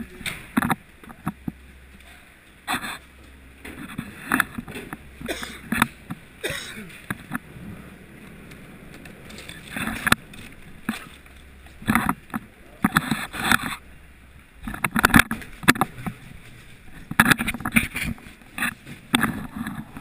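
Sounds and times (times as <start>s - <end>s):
boots and gear on metal floor: 0.0s - 7.5s.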